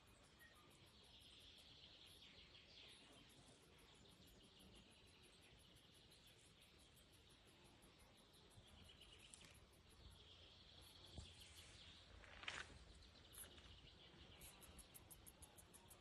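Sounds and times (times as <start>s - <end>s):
insect chirping: 0.0s - 16.0s.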